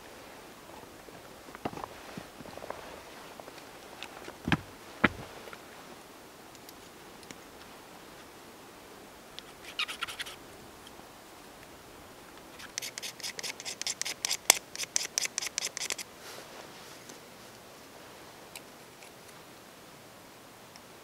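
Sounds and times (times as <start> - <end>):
knife scraping wood: 9.4 - 10.4, 12.6 - 16.0.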